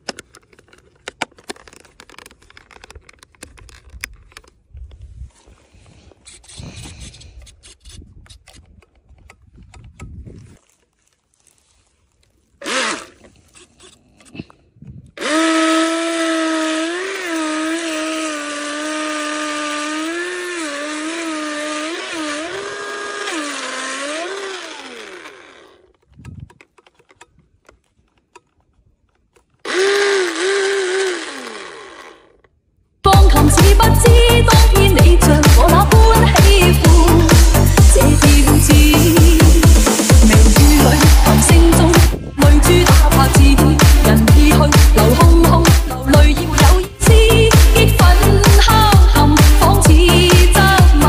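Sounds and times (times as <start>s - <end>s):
toy boat motor whining: 0.1s - 4.0s, 12.6s - 14.4s, 15.2s - 27.2s, 29.3s - 51.0s.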